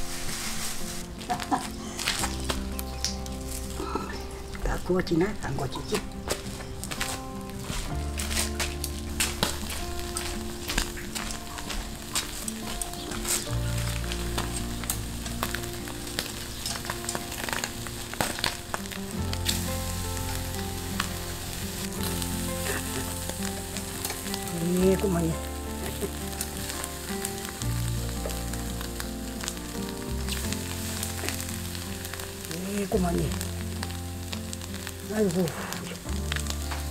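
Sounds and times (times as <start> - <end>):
fish sizzling on a grill: 0.0 - 36.9.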